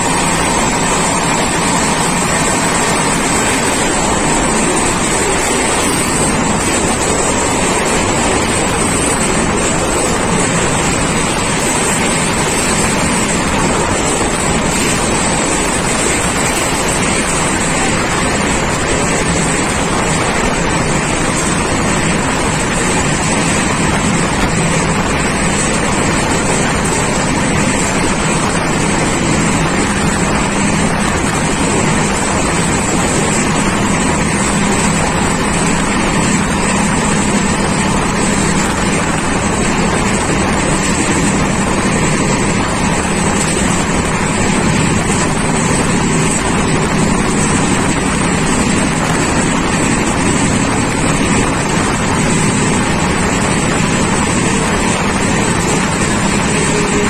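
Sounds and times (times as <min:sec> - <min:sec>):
train wheels rumbling on rails: 0:00.0 - 0:57.0
wind rushing past microphone: 0:00.0 - 0:57.0.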